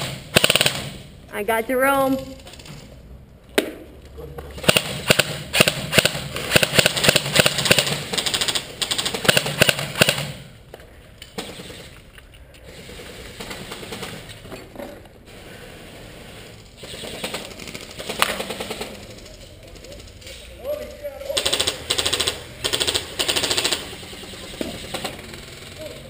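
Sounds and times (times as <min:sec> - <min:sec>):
airsoft rifles firing bursts: 0:00.0 - 0:01.1, 0:04.6 - 0:10.5, 0:11.4 - 0:12.0, 0:12.7 - 0:14.3, 0:16.8 - 0:20.0, 0:21.2 - 0:26.0.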